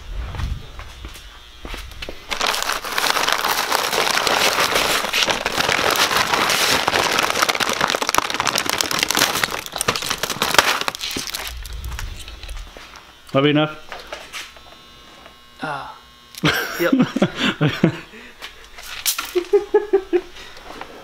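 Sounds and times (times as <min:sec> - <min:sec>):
plastic bag crinkling: 0:02.3 - 0:12.8.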